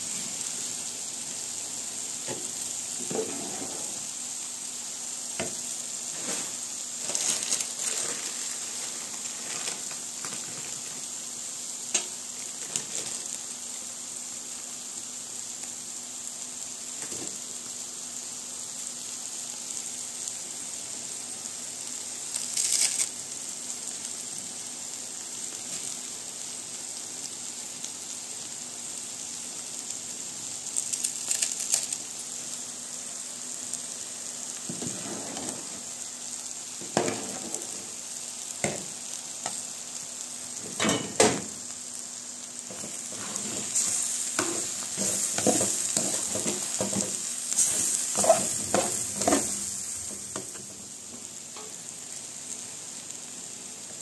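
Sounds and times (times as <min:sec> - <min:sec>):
food sizzling in a pan: 0:00.0 - 0:54.0
utensils clattering against pots: 0:40.6 - 0:41.5.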